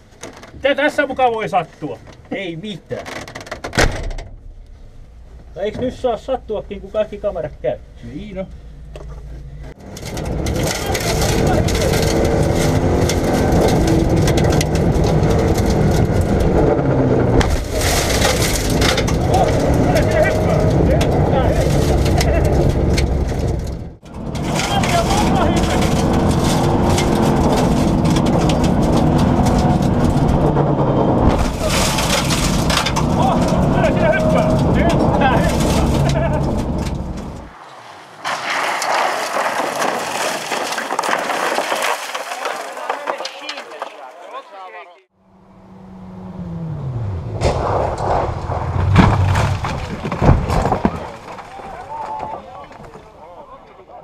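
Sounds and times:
tyres on gravel: 4.5s - 45.1s, 47.0s - 54.0s
rally car engine pulling hard: 9.5s - 43.6s, 45.3s - 52.9s
stones striking underbody: 38.2s - 44.1s, 48.7s - 53.1s.

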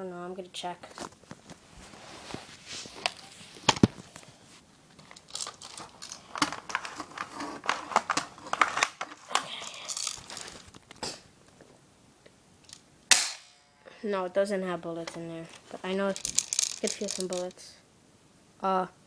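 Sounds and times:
microphone rubbing on clothing: 1.6s - 4.6s
plastic clicks and rattles: 5.0s - 11.0s, 15.1s - 17.6s.

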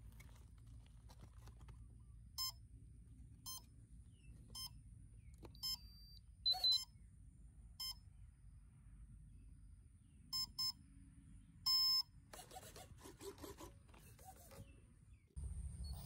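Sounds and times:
speed controller short beeps: 5.6s - 6.9s, 10.4s - 10.8s, 11.7s - 12.1s.

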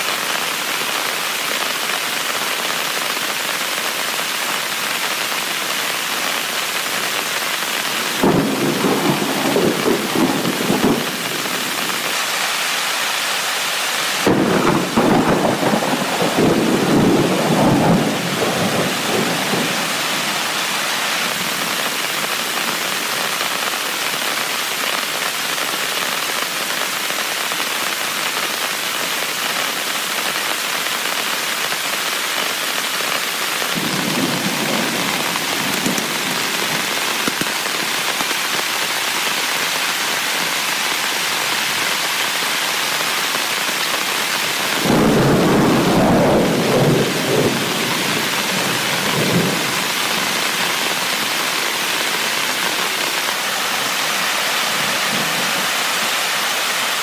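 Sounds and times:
heavy rain falling: 0.0s - 57.0s
thunder rumbling: 7.9s - 12.1s, 14.2s - 22.2s, 33.7s - 37.4s, 44.8s - 50.5s.

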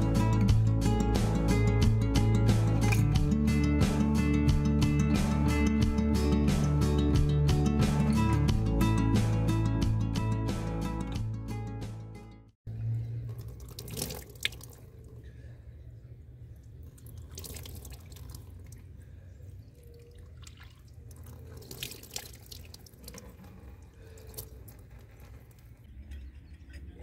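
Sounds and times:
water trickling into basin: 13.0s - 27.0s
water splashing from hands: 13.4s - 15.1s, 17.0s - 18.9s.

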